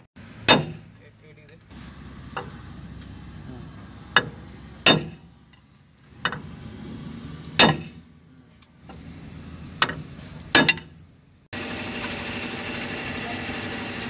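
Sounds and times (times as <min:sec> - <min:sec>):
engine running noise: 0:00.0 - 0:14.0
ringing metal clanks: 0:00.5 - 0:01.6, 0:04.1 - 0:06.5, 0:07.6 - 0:08.0, 0:09.8 - 0:11.1.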